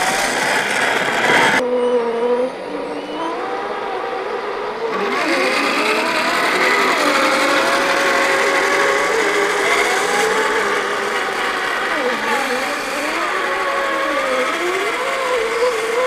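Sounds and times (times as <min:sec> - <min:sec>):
hiss: 0:00.0 - 0:01.6, 0:05.0 - 0:16.0
electric motors whining: 0:00.0 - 0:16.0.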